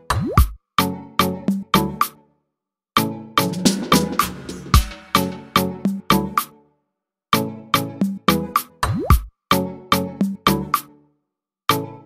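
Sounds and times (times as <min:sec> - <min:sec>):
music with steady beat: 0:03.4 - 0:06.5.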